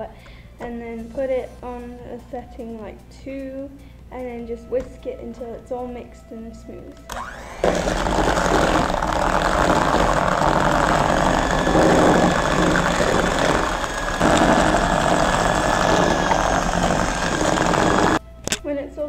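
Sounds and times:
electric hand mixer whirring: 0:07.1 - 0:18.2.

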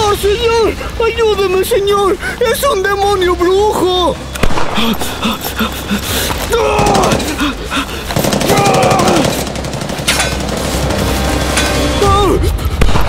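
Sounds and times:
person yelling: 0:06.5 - 0:07.4, 0:08.4 - 0:09.4, 0:12.0 - 0:12.6
machine gun firing bursts: 0:06.8 - 0:11.8.

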